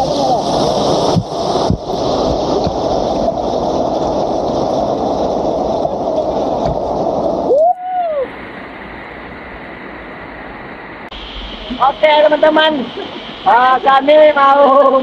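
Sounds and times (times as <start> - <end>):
waterfall rushing and splashing: 0.0 - 15.0.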